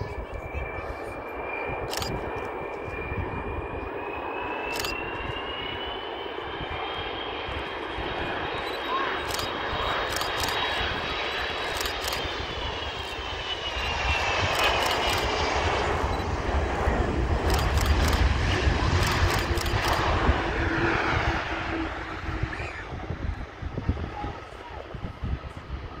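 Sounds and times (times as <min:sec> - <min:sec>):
deep jet engine roar: 0:00.0 - 0:26.0
jet engine whine: 0:00.0 - 0:26.0.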